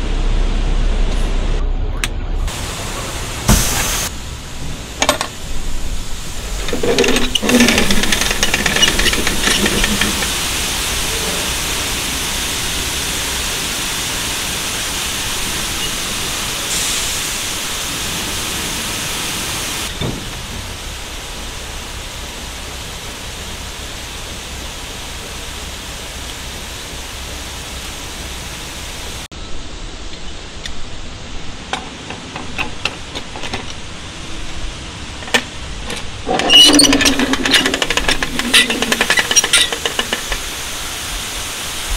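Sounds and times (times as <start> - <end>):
grain pouring hiss: 2.5 - 29.3, 34.0 - 41.9
metal gate clanks and rattles: 5.0 - 5.4, 6.5 - 10.5, 31.6 - 34.0, 35.2 - 40.6.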